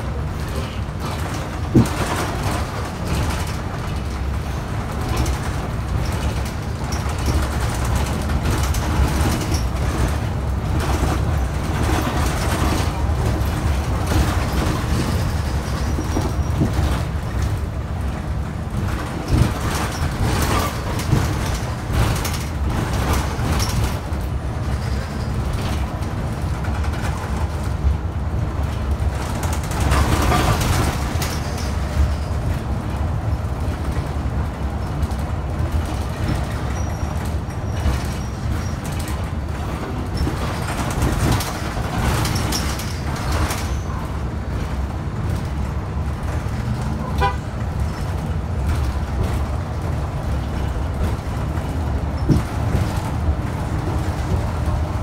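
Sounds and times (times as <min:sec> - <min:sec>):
bus engine and road rumble: 0:00.0 - 0:55.0
knocks and rattles: 0:00.4 - 0:27.9, 0:28.6 - 0:34.2, 0:34.9 - 0:55.0.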